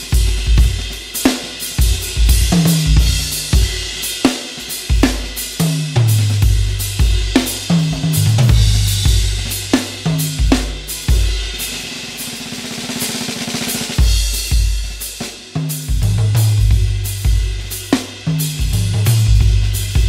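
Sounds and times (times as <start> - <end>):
bass drum thumps: 1.8 - 3.8, 6.0 - 7.4, 8.0 - 9.6, 16.0 - 17.6, 18.6 - 20.0.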